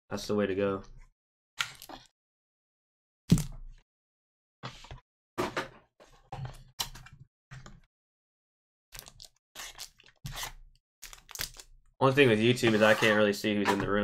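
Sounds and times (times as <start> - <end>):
cardboard box scrapes and clacks: 12.4 - 13.8.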